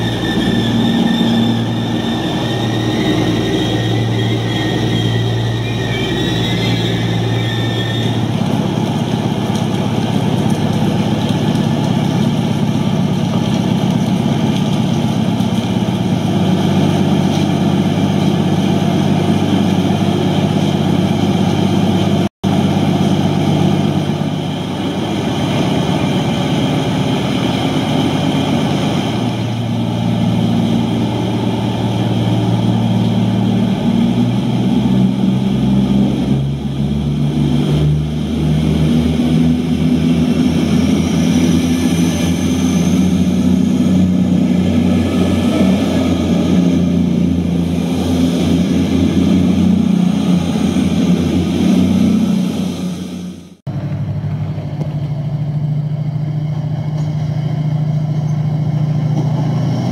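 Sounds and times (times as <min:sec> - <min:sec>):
diesel engine idling from speaker: 0:53.7 - 0:59.5.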